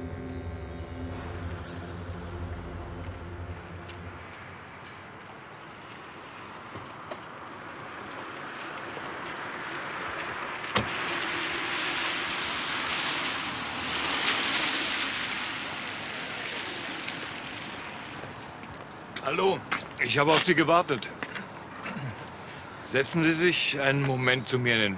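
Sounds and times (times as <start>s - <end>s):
car passing: 0.0s - 19.1s.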